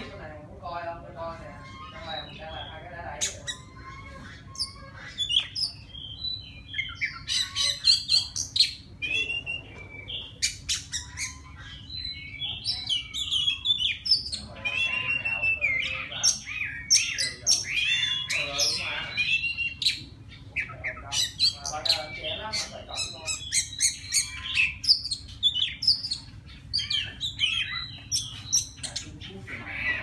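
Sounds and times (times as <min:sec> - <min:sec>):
bird singing whistles: 0:09.0 - 0:11.5.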